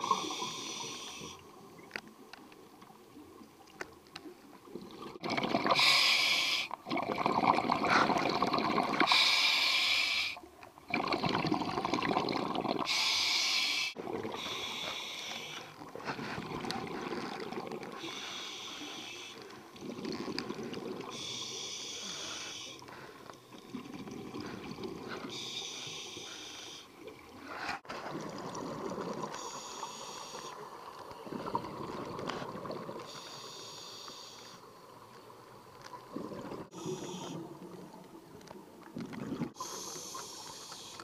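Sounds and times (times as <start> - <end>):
exhaled bubbles bursting: 4.8 - 5.8, 6.8 - 9.1, 10.9 - 12.9, 27.9 - 29.3, 31.2 - 33.1, 36.0 - 38.0, 38.9 - 39.6.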